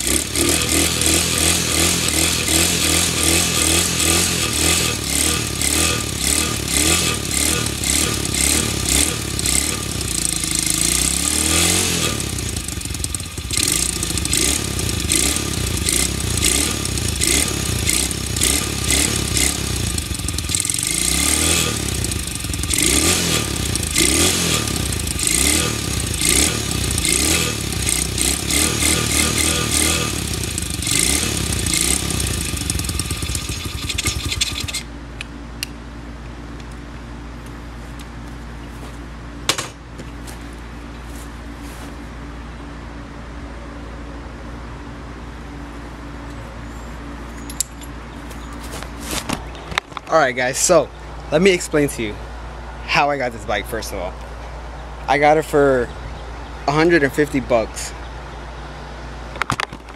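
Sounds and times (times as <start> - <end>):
motorbike engine revving: 0.0 - 34.9.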